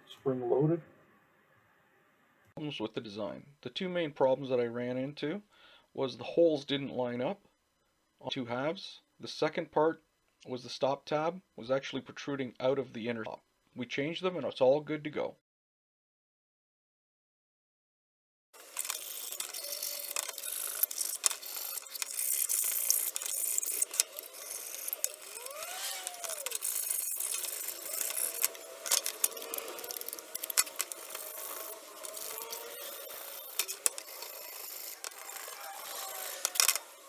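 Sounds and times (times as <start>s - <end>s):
sped-up plastic parts clicking: 18.6s - 37.0s.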